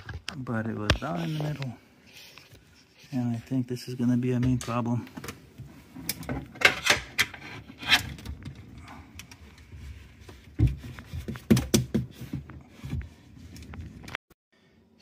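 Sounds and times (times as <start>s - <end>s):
sharp knocks and clicks: 10.6s - 12.2s.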